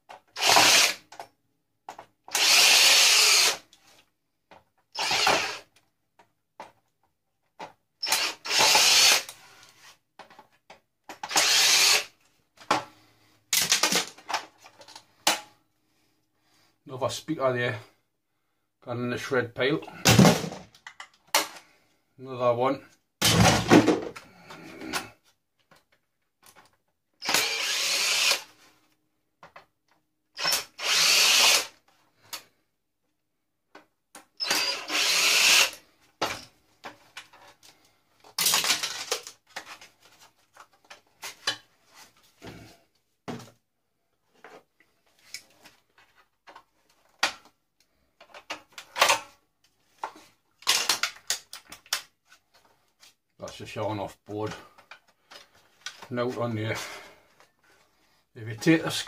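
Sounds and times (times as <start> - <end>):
power drill running: 0.4 - 1.0, 2.3 - 3.6, 5.0 - 5.6, 8.0 - 9.3, 11.3 - 12.1, 27.2 - 28.5, 30.4 - 31.7, 34.4 - 35.8
metal and plastic parts clicking: 50.6 - 52.7.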